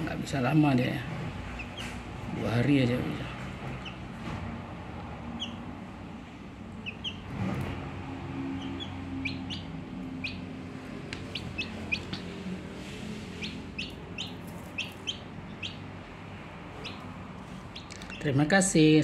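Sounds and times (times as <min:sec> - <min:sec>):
chick peeping: 0:01.5 - 0:04.2, 0:05.3 - 0:05.7, 0:06.7 - 0:07.3, 0:08.5 - 0:16.0, 0:16.7 - 0:18.4.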